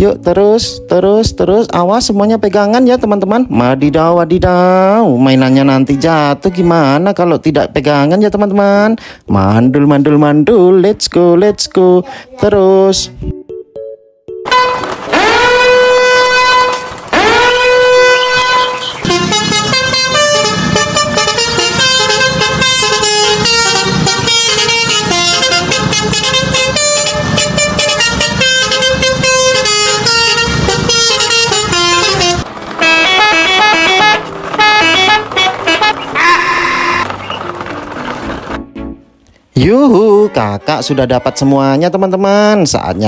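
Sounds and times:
upbeat background music: 0.0 - 3.8, 12.5 - 15.6, 32.1 - 42.8
truck horn honks: 14.4 - 37.1.

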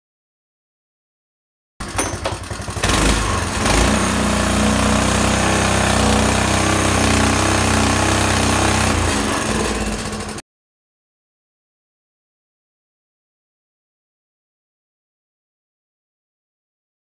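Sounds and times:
small gasoline engine running: 1.8 - 10.4.

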